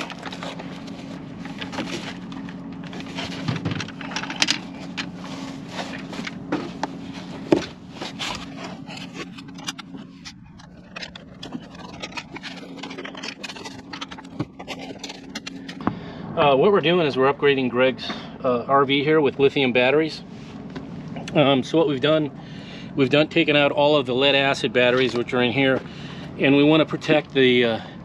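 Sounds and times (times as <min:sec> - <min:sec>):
batteries knocking and scraping: 0:00.0 - 0:15.8
steady low hum: 0:00.0 - 0:28.0.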